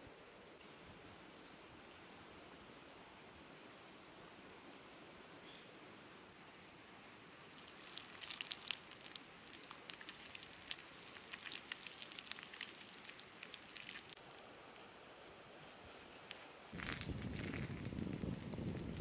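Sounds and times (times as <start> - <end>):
sizzling pops on hot stone: 16.8 - 19.0.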